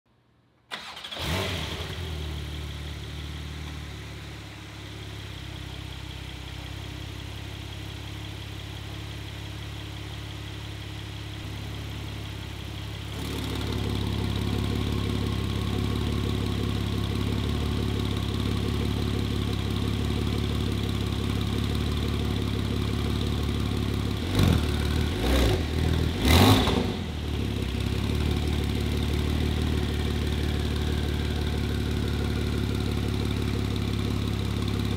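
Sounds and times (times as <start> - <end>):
sports car engine idling: 2.1 - 34.9.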